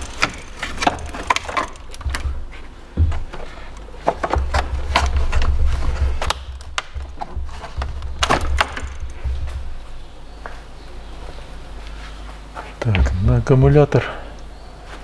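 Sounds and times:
hard plastic clicks and knocks: 0:00.0 - 0:02.4, 0:03.0 - 0:09.7
plastic scraping against parts: 0:00.0 - 0:09.7.

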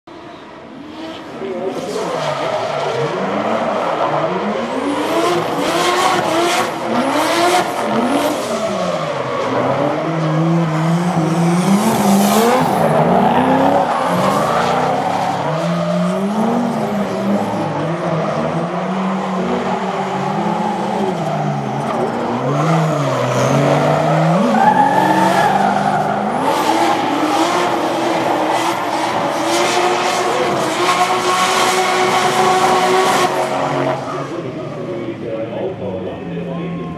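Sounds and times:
car engines revving: 0:00.1 - 0:36.9
tyres squealing on tarmac: 0:24.2 - 0:27.3.

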